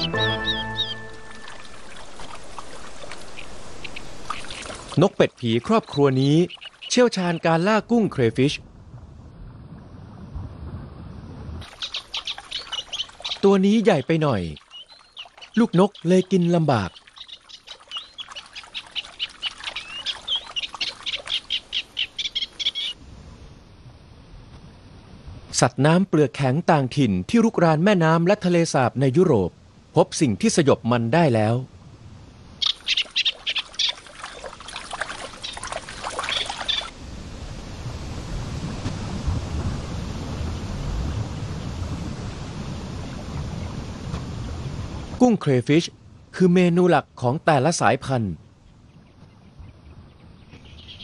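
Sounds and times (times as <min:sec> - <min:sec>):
water splashing and dribbling: 0:00.0 - 0:07.8, 0:08.8 - 0:23.0, 0:32.6 - 0:45.2
steady low rumble: 0:08.0 - 0:11.6
chicks begging peeps: 0:11.7 - 0:13.6, 0:14.7 - 0:23.0, 0:32.6 - 0:34.0, 0:35.2 - 0:36.9.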